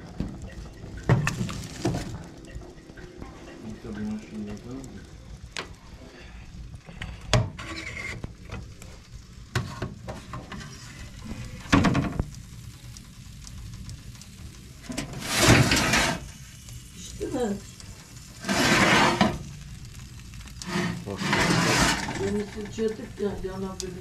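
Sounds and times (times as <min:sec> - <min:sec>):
oven door opening hiss: 0:14.8 - 0:16.4, 0:18.4 - 0:19.4, 0:20.6 - 0:22.8.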